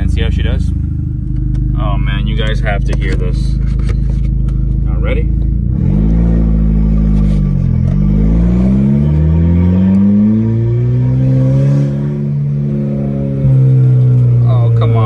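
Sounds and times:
car engine accelerating through gears: 0.9 - 15.0.

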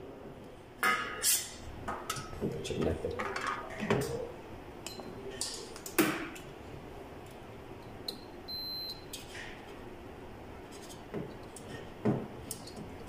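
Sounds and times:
multimeter continuity beep: 8.1 - 9.2.

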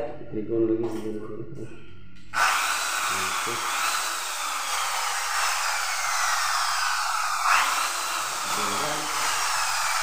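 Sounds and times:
power tool motor whirring: 2.4 - 10.0.

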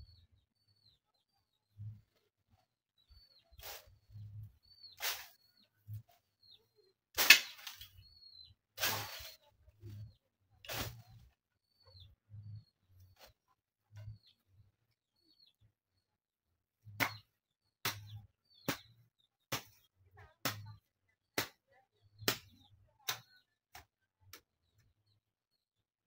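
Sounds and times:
hoe chopping into soil: 5.0 - 5.4, 7.2 - 7.9, 8.8 - 9.4, 10.7 - 11.2.

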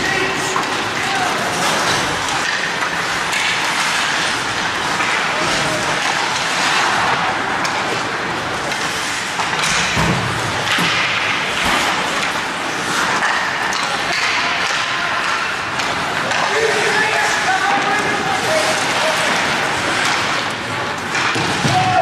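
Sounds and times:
skates scraping ice: 0.0 - 22.0
sticks and puck knocking: 0.0 - 22.0.

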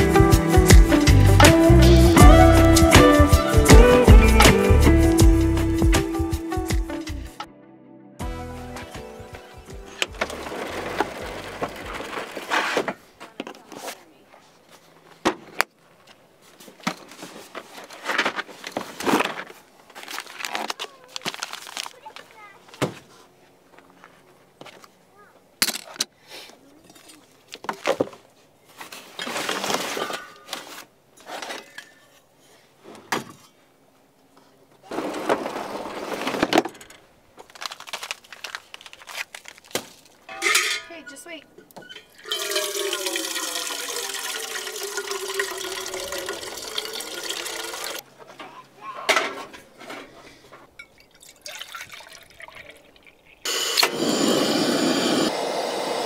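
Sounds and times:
cookware knocks and clinks: 40.3 - 40.9
liquid pouring: 42.2 - 48.0, 50.9 - 53.4
gas stove burner hissing: 53.5 - 56.0.

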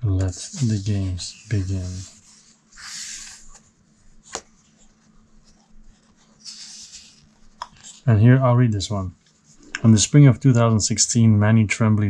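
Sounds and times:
book page turning: 0.2 - 8.1.

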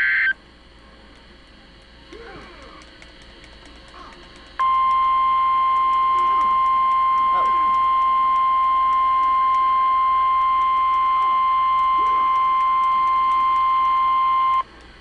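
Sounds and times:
weather radio alarm tone: 0.0 - 0.3, 4.6 - 14.6.

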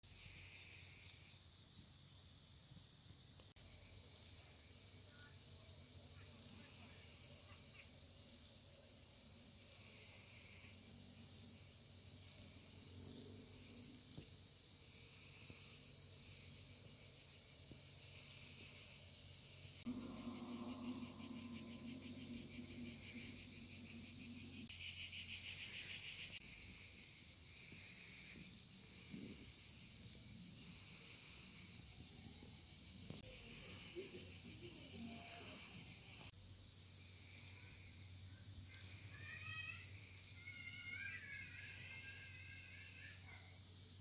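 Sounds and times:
insects buzzing chorus: 0.1 - 44.0
nearer insect buzzing: 19.7 - 29.9
low hum: 19.8 - 24.7.

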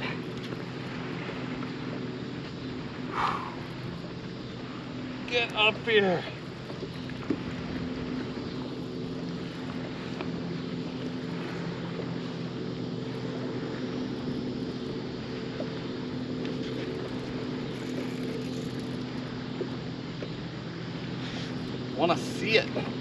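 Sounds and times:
boat motor humming: 0.0 - 23.0
water wash: 0.0 - 23.0
wind: 0.0 - 23.0.

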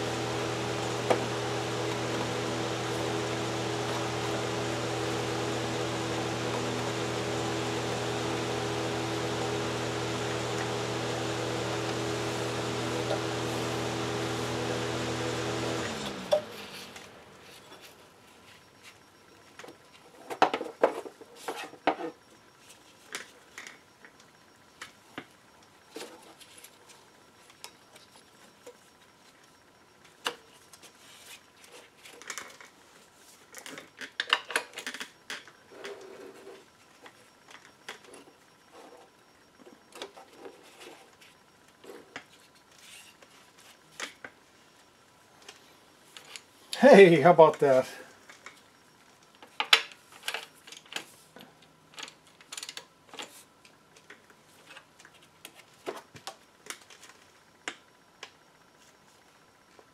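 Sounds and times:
machine hum: 0.0 - 21.1.

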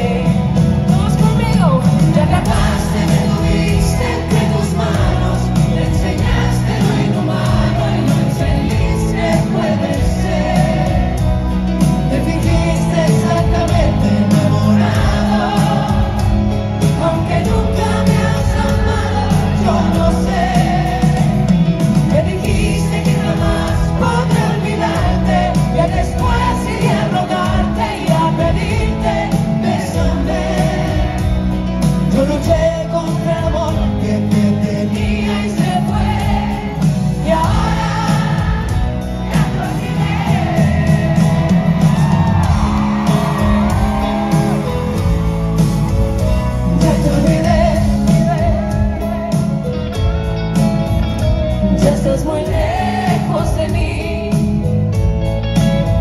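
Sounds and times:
live band with guitars: 0.0 - 56.0
woman singing: 51.7 - 54.7.

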